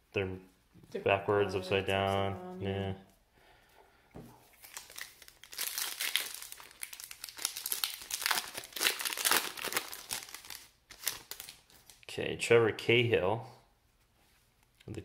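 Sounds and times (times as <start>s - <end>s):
foil wrapper tearing and crinkling: 4.6s - 12.0s.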